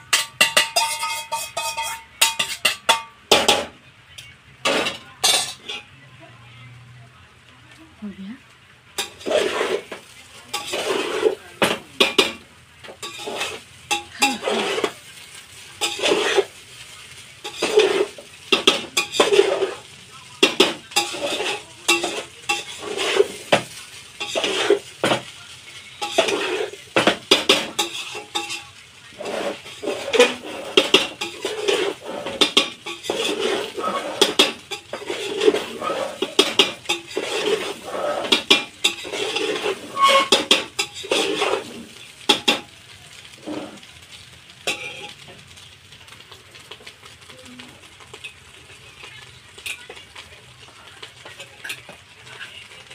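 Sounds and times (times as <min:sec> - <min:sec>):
spoon scraping metal pot: 0:00.0 - 0:03.7, 0:09.0 - 0:16.6, 0:17.4 - 0:43.8, 0:44.6 - 0:45.2
spoon stirring fried rice: 0:00.0 - 0:03.7, 0:09.0 - 0:47.2, 0:47.8 - 0:52.9.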